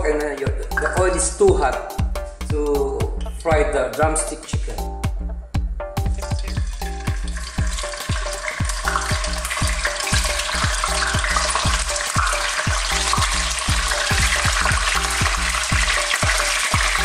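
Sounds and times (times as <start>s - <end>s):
background music with steady beat: 0.0s - 17.0s
chicken sizzling in oil: 6.5s - 17.0s.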